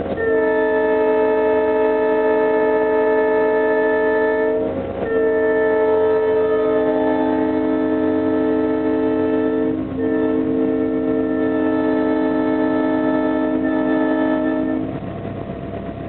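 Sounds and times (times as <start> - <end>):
locomotive air horn blasts: 0.0 - 15.1.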